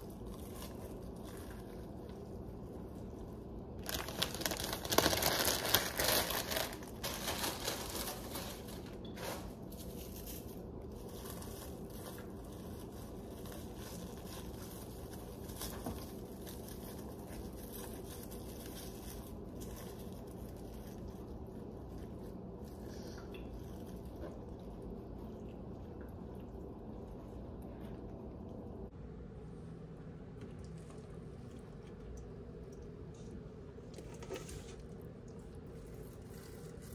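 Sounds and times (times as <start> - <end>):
plastic bag crinkling: 0.0 - 25.9, 33.9 - 36.9
low background hum: 0.0 - 36.9
faint rustles and clicks: 30.3 - 36.9.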